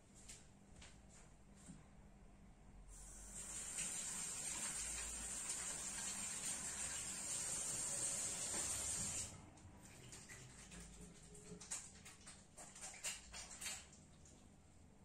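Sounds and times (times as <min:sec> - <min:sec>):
tap water running: 0:03.0 - 0:14.0
hands washing under water: 0:09.8 - 0:14.5.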